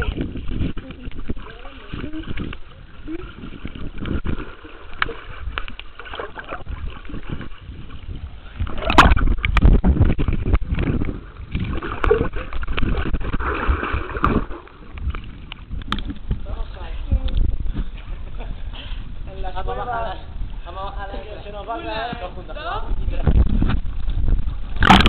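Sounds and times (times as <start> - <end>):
water sloshing and gurgling: 0.0 - 25.0
loud splash: 8.6 - 14.9.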